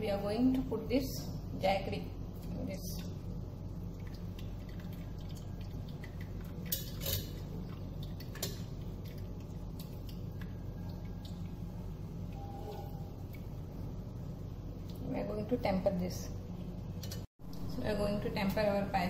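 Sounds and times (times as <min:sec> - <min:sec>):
steady low hum: 0:00.0 - 0:19.0
liquid pouring through strainer: 0:03.8 - 0:13.6
metal strainer clinking: 0:06.7 - 0:07.4.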